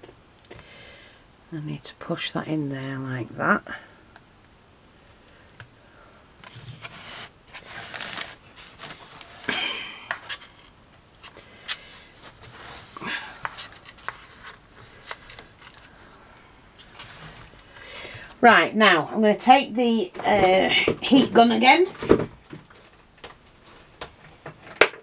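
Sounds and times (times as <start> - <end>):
scraping and rubbing on a board: 6.4 - 9.5.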